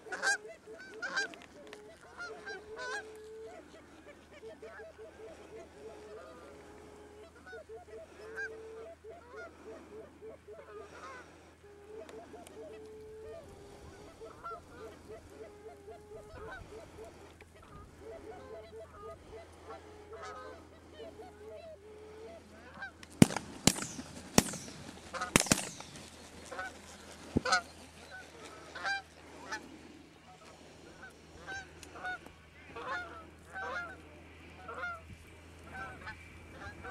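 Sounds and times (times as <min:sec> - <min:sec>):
geese honking: 0:00.0 - 0:36.9
shotgun shots: 0:23.2 - 0:26.1.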